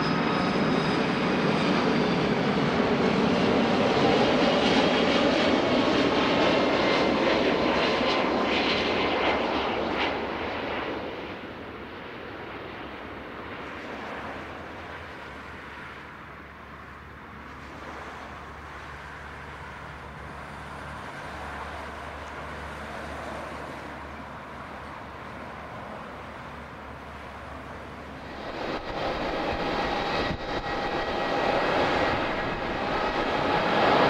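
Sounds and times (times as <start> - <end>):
distant jet engines: 0.0 - 34.0.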